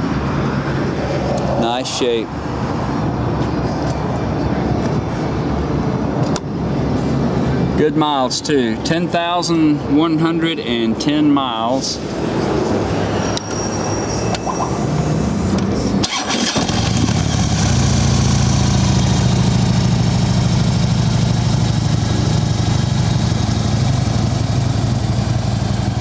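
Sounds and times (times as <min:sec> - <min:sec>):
motorcycle engine starting and idling: 0:16.0 - 0:26.0.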